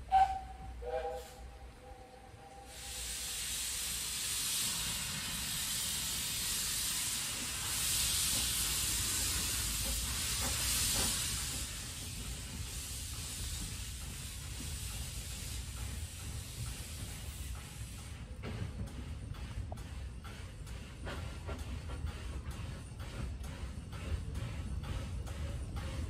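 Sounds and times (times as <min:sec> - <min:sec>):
steam locomotive hissing steam: 0:00.0 - 0:26.0.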